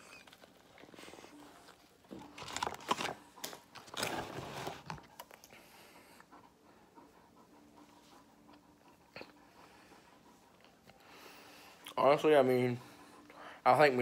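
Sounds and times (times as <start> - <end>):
heavy breathing: 5.4 - 14.0.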